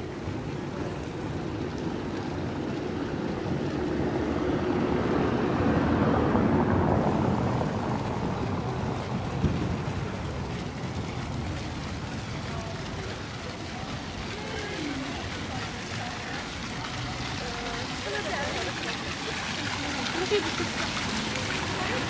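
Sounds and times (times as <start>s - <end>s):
vehicle passing: 2.7s - 22.0s.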